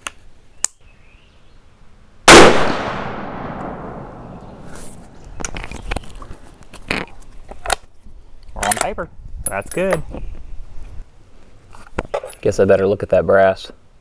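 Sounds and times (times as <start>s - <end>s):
rifle shot with echo: 2.3s - 4.7s.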